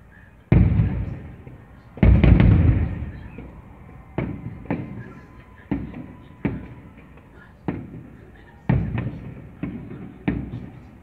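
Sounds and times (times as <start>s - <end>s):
firework bangs echoing: 0.5s - 11.0s.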